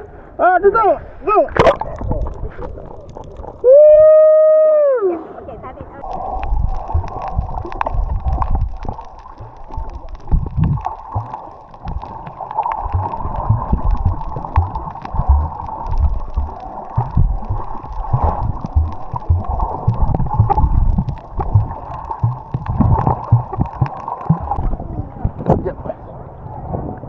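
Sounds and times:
water rushing past boat hull: 5.1 - 25.8
wind buffeting microphone: 5.7 - 9.6, 12.8 - 27.0.

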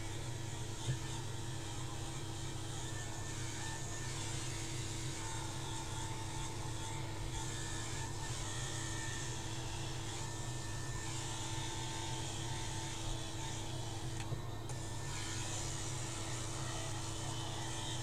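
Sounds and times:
electric hair clippers buzzing: 0.0 - 18.0.

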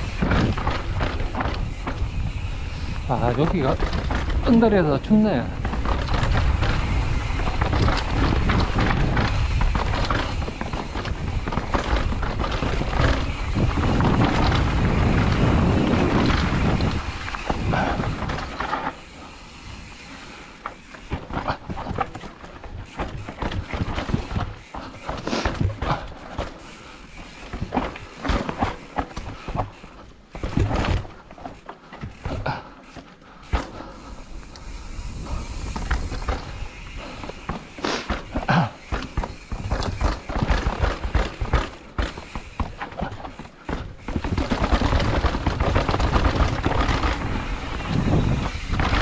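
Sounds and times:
wind buffeting microphone: 0.0 - 18.6, 44.2 - 49.0
bike rattling and clacking: 0.0 - 49.0
tyres rolling over dirt: 0.0 - 49.0.

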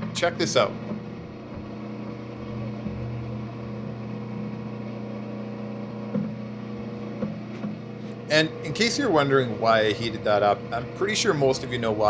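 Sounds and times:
lathe humming: 0.0 - 12.0.

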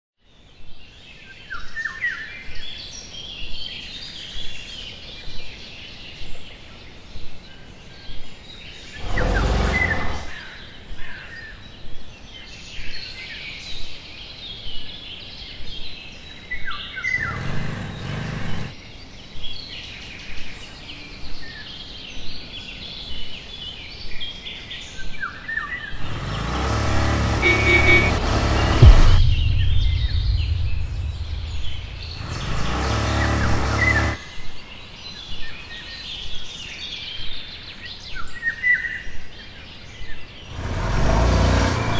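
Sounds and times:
low rumble: 9.0 - 10.3, 26.0 - 34.2
sharp pulse: 9.0 - 10.3, 26.0 - 34.2, 40.5 - 41.9.

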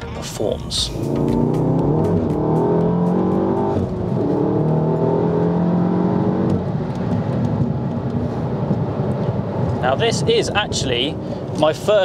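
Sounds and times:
car engine accelerating: 0.7 - 10.0.

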